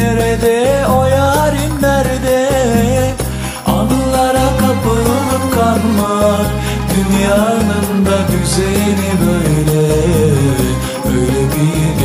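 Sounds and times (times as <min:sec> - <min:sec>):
pulsing bass: 0:00.0 - 0:12.0
wavering melody line: 0:03.6 - 0:11.8.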